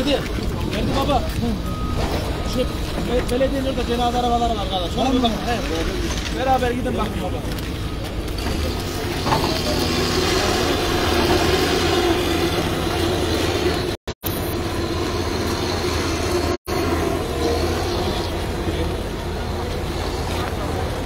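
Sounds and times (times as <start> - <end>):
outdoor noise: 0.0 - 21.0
vehicle engines rumbling: 0.0 - 21.0.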